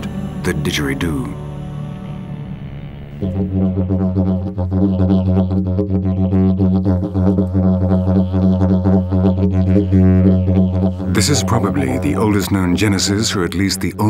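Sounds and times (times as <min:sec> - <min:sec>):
didgeridoo drone: 0:00.0 - 0:14.0.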